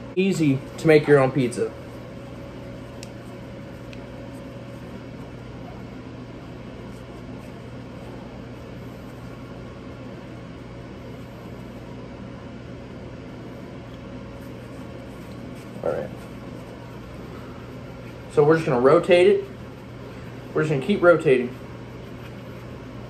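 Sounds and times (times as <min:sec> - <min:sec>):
machine hum with hiss: 0:00.0 - 0:23.0.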